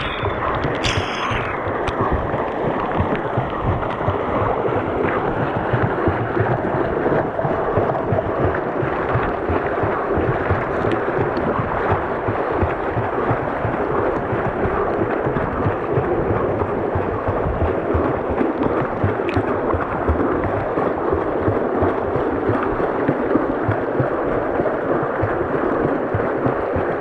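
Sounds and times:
river current rushing and splashing: 0:00.0 - 0:02.3
wind buffeting microphone: 0:00.0 - 0:27.0.

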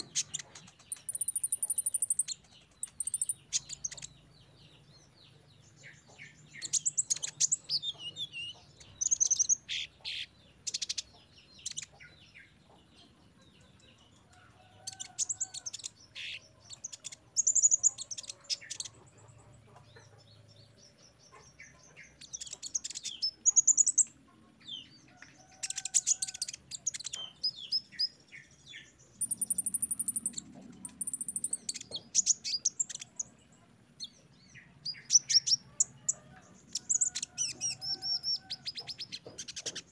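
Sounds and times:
bird chirping and trilling: 0:24.8 - 0:33.4.

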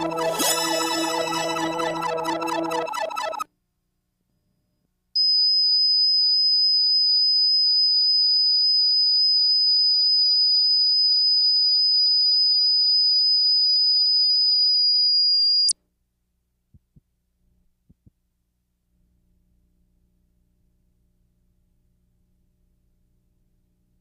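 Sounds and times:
steady high-pitched sine tone: 0:00.0 - 0:03.4.

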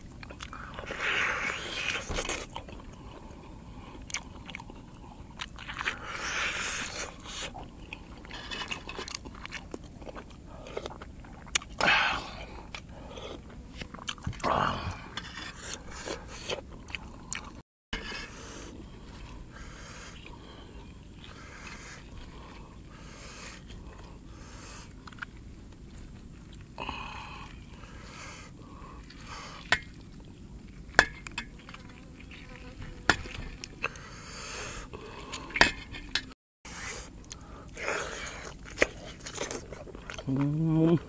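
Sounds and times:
wet eating and chewing: 0:00.0 - 0:41.0
knife cutting and scraping meat: 0:15.1 - 0:16.6.

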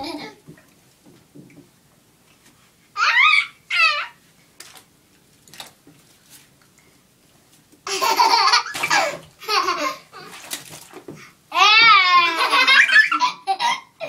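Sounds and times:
toddler laughing: 0:07.9 - 0:10.0, 0:11.8 - 0:14.0.

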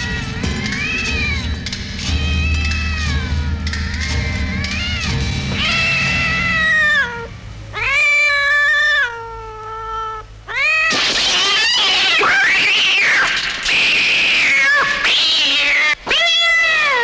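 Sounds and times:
low droning film score: 0:00.0 - 0:07.8
cat yowling: 0:00.0 - 0:17.0.

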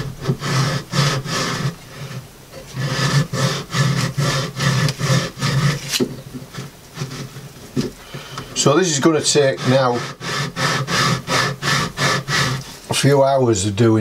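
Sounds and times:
skin rubbing over wooden board: 0:00.0 - 0:07.9.

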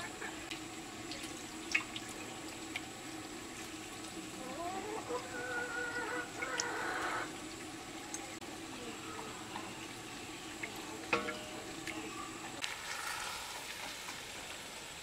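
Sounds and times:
liquid splashing and dripping: 0:00.4 - 0:08.4.

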